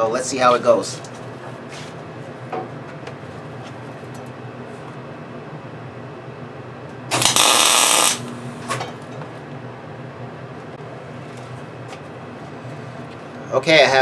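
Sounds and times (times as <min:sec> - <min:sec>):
welder arc bursts: 0:07.1 - 0:08.4.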